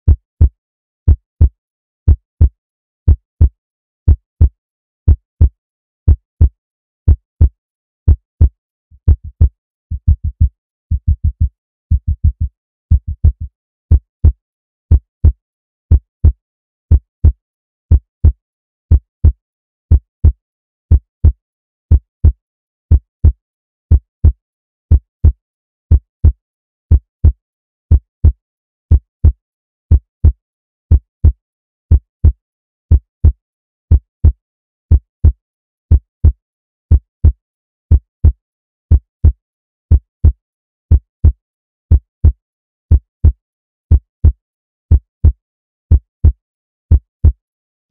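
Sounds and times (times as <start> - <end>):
heartbeat thumps: 8.1 - 17.0.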